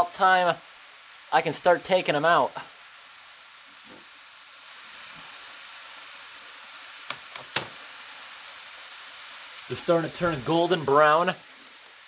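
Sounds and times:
fries sizzling in hot fat: 0:00.0 - 0:12.0.

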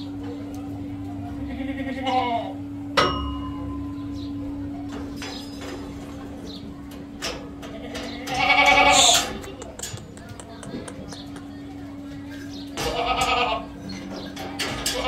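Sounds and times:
steady low hum: 0:00.0 - 0:15.0
goats bleating: 0:01.3 - 0:02.6, 0:07.7 - 0:09.5, 0:12.8 - 0:13.8
metallic clang: 0:03.0 - 0:04.0, 0:04.9 - 0:06.3.

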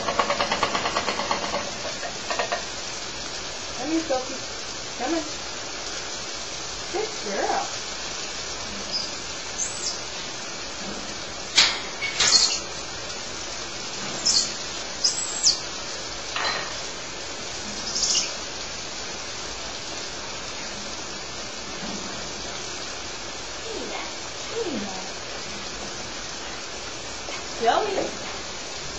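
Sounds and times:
steady hiss: 0:00.0 - 0:28.9
monkeys chirping: 0:08.6 - 0:10.3, 0:11.6 - 0:12.8, 0:14.2 - 0:15.7, 0:17.7 - 0:18.4.

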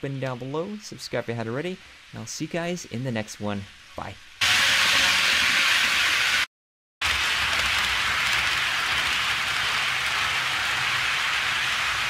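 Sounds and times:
model train rolling on track: 0:07.0 - 0:12.0.

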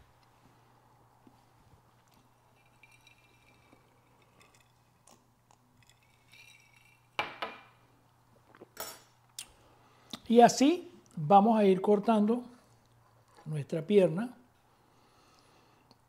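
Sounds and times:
quiet handling sounds: 0:00.0 - 0:06.0
glass knocking on stone countertop: 0:07.2 - 0:07.7.

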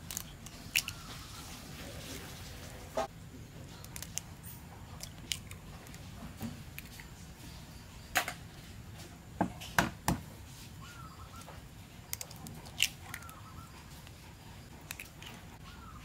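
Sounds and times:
eggshells cracking: 0:00.0 - 0:01.4, 0:04.9 - 0:06.0, 0:12.0 - 0:13.4, 0:14.8 - 0:15.4.

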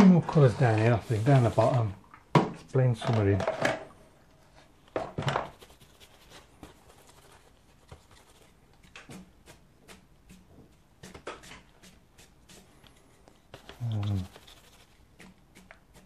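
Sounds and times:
brush strokes on paper: 0:00.3 - 0:01.9, 0:05.4 - 0:16.0.

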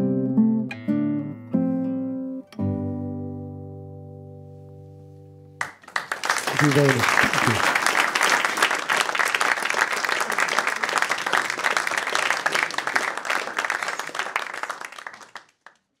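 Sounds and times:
audience applauding: 0:05.6 - 0:15.9.

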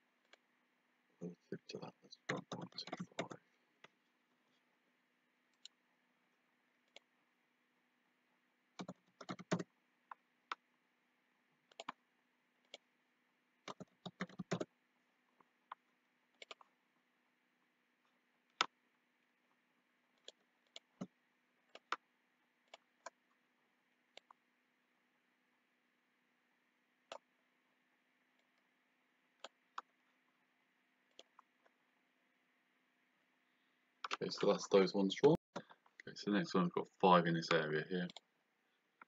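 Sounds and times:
faint steady hum: 0:00.0 - 0:39.0
keyboard keystrokes: 0:08.8 - 0:09.7.

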